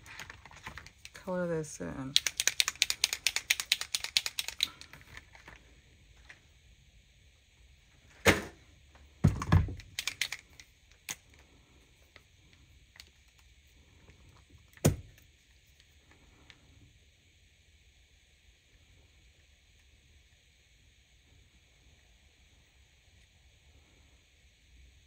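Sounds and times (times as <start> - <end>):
fast run of light clicks: 2.2 - 5.4, 9.8 - 11.4.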